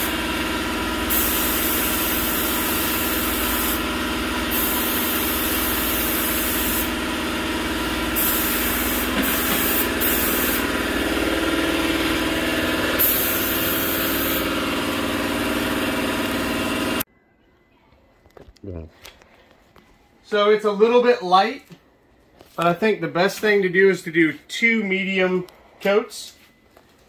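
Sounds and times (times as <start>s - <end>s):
paint spray gun hissing: 0.0s - 17.0s
air compressor humming: 0.0s - 17.1s.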